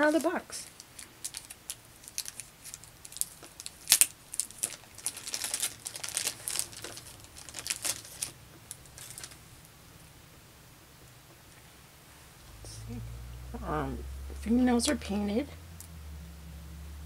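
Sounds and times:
plastic wrapping crinkling: 0:00.0 - 0:09.5.

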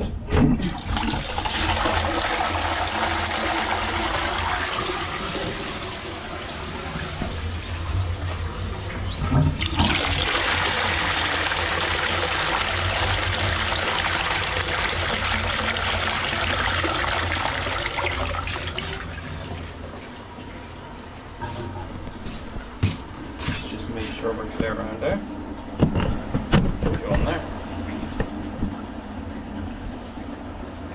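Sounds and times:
toilet flushing: 0:00.5 - 0:22.4.

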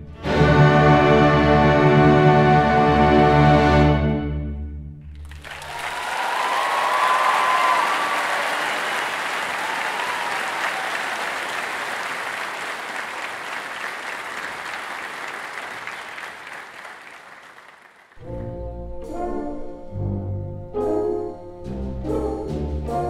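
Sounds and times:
orchestral music with low chords: 0:00.0 - 0:05.2, 0:18.2 - 0:23.0
audience applause: 0:05.1 - 0:18.2.

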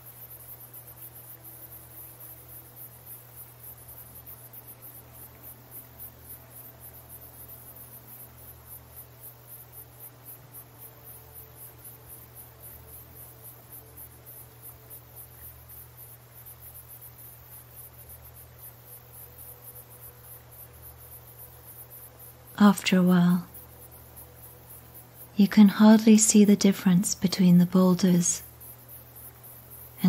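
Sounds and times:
insects chirping: 0:00.0 - 0:30.0
low steady hum: 0:00.0 - 0:30.0.

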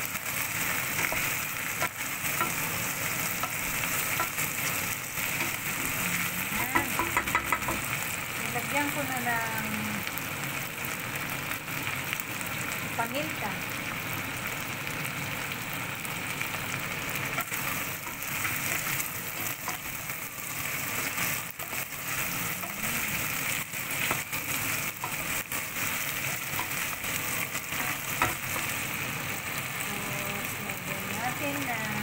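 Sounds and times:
chicken and onions sizzling in oil: 0:00.0 - 0:32.0
wooden spoon knocking pot: 0:06.7 - 0:07.9.

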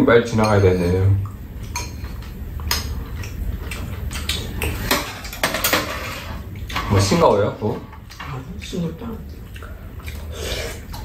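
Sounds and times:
utensils clinking on ceramic bowls: 0:00.3 - 0:01.0.

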